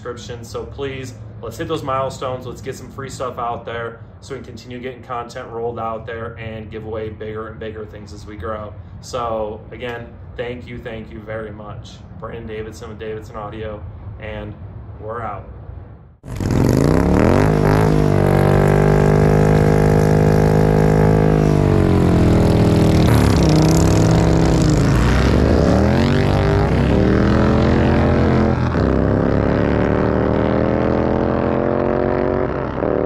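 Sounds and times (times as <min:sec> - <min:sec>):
motorcycle engine revving: 0:16.2 - 0:33.0.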